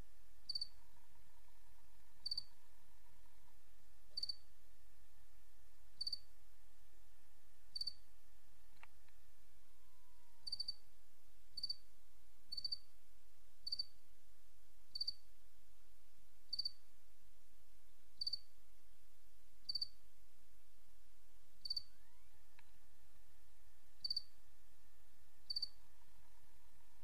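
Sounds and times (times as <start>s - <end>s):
low steady hum: 0.0s - 27.0s
cricket chirping: 0.5s - 3.5s, 4.1s - 4.5s, 6.0s - 6.3s, 7.7s - 8.0s, 9.8s - 10.8s, 11.6s - 11.8s, 12.5s - 12.9s, 13.6s - 14.0s, 14.9s - 15.2s, 16.5s - 16.8s, 18.2s - 18.5s, 19.6s - 20.0s, 21.6s - 22.4s, 24.0s - 24.4s, 25.4s - 26.9s.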